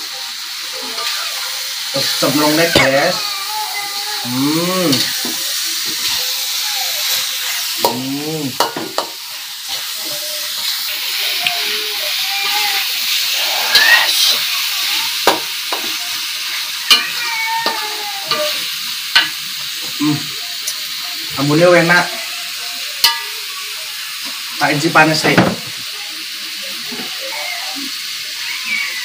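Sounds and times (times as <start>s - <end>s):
food sizzling in wok: 0.0s - 29.0s
spatula scraping and knocking pan: 8.6s - 9.9s.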